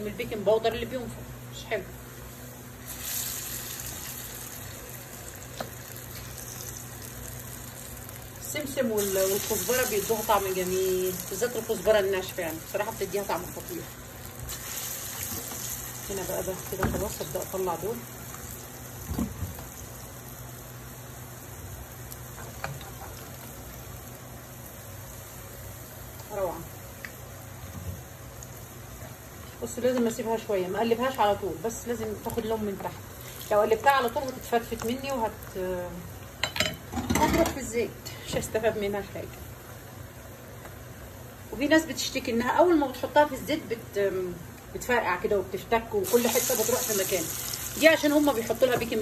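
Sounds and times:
hot oil sizzling: 2.0 - 49.0.

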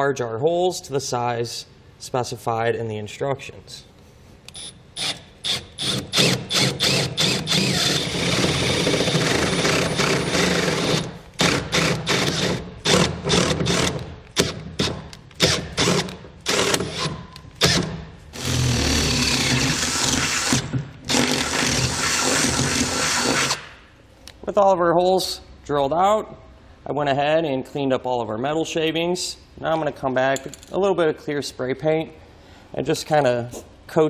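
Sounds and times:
power drill boring through steel: 5.8 - 11.1.

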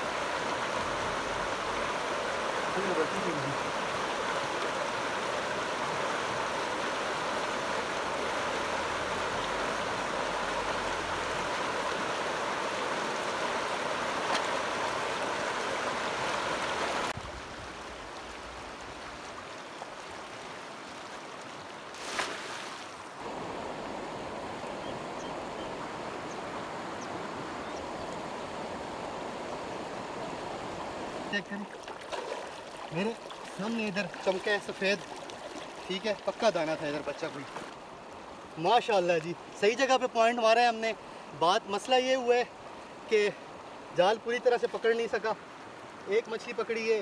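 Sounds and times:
stream flowing over stones: 0.0 - 24.6, 28.1 - 47.0.

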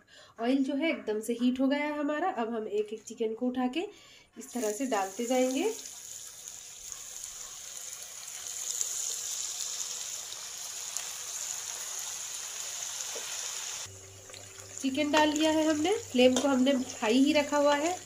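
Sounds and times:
chicken sizzling in hot oil: 4.4 - 18.0.

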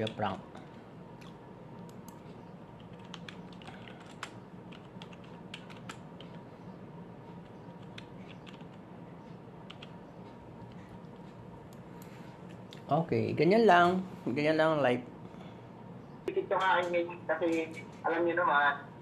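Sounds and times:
laptop keyboard typing: 0.0 - 0.4, 1.2 - 6.5, 7.4 - 8.9, 9.6 - 10.0
steady low hum: 0.0 - 19.0.

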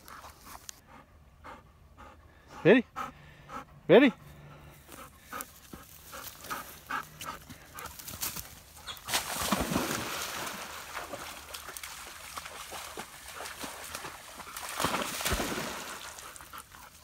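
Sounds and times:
dogs splashing in water: 9.0 - 17.0.

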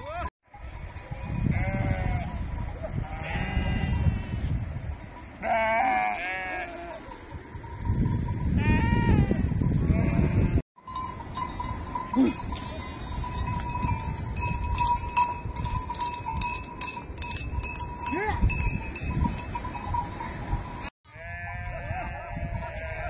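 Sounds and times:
sheep bleating: 3.0 - 4.4, 5.4 - 7.1, 21.1 - 23.0
small metal bells jingling: 6.2 - 8.6, 10.8 - 23.0.

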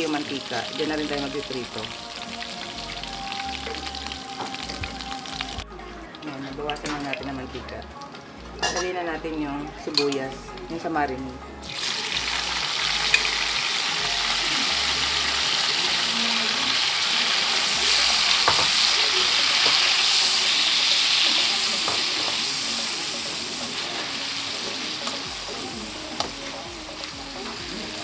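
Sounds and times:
onions sizzling in hot oil: 0.0 - 7.4, 11.6 - 28.0
tongs clinking against pan: 8.6 - 8.9.

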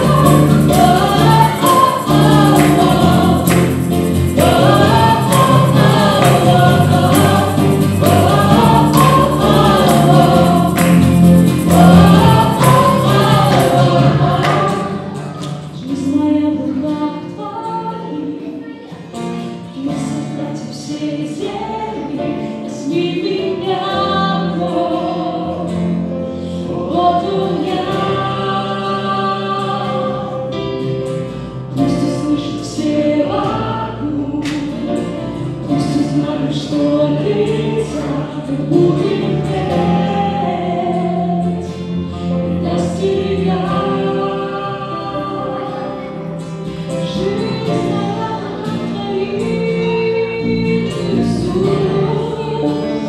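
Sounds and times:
acoustic guitar: 0.0 - 53.0
electric guitar: 0.0 - 53.0
keyboard: 0.0 - 53.0
men and women singing together: 0.0 - 53.0.

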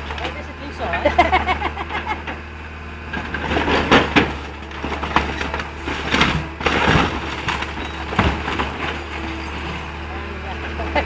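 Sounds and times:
grapple crushing car body: 3.2 - 9.8.

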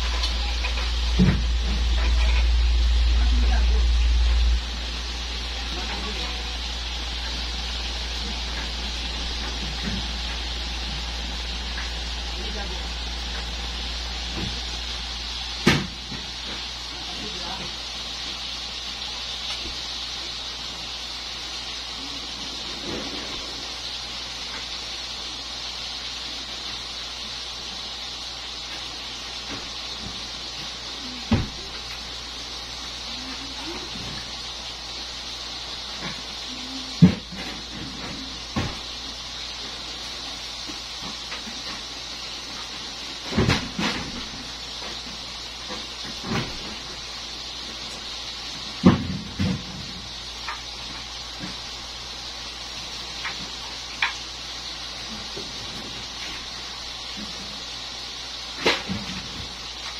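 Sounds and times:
constant low hum: 0.0 - 26.4
steady hiss: 0.0 - 59.9.

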